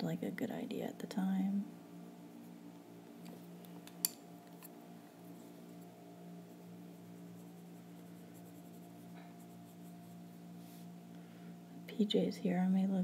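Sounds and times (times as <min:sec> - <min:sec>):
steady low hum: 0:00.0 - 0:13.0
pencil scratching on paper: 0:06.4 - 0:10.4.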